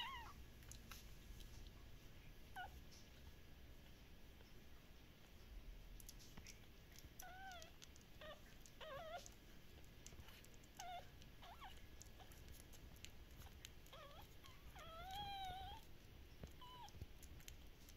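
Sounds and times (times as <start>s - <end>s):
puppies squeaking and whimpering: 0.0s - 1.0s, 7.2s - 9.4s, 10.2s - 17.4s.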